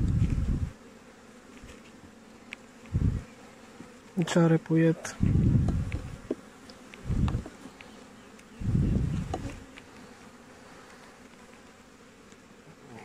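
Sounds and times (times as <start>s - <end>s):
honeybees buzzing: 0.0s - 13.0s
muffled rumbles on microphone: 2.9s - 3.3s, 5.1s - 6.3s, 7.0s - 7.5s, 8.6s - 9.6s.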